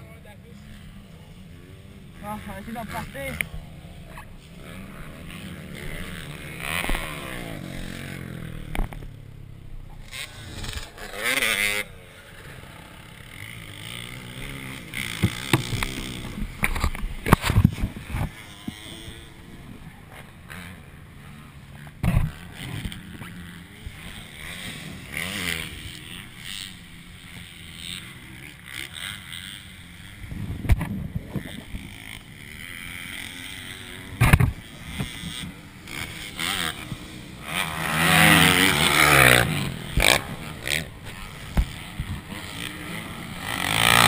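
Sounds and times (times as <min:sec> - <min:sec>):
quad engine idling and revving: 0:00.0 - 0:44.0.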